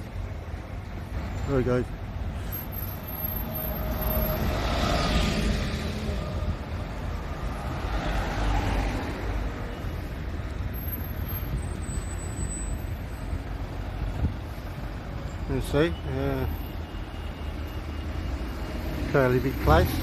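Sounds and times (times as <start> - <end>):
bus passing: 0.0 - 20.0
steady low traffic rumble: 0.0 - 20.0
vehicle passing: 3.4 - 10.7.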